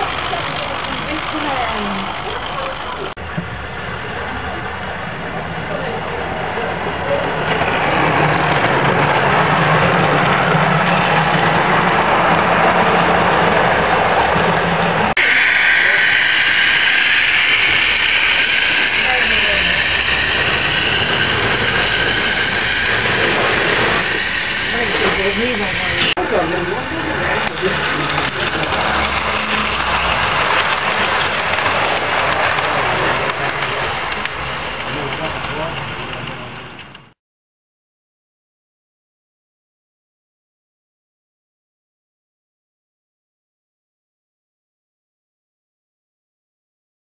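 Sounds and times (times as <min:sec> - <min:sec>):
model train humming past: 0:00.0 - 0:37.0
locomotive motor running: 0:00.0 - 0:37.1.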